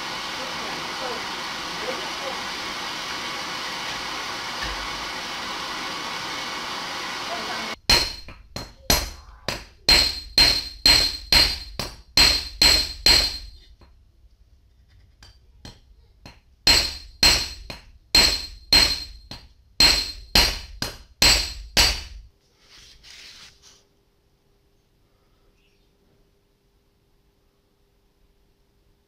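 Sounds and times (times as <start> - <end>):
hammer striking steel: 7.8 - 13.7, 15.6 - 22.3.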